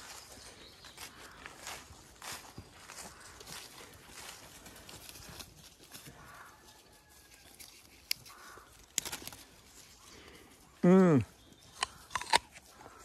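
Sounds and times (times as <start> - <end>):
footsteps through grass and leaves: 0.0 - 13.0
crisp clicks: 7.6 - 9.5, 11.7 - 12.6.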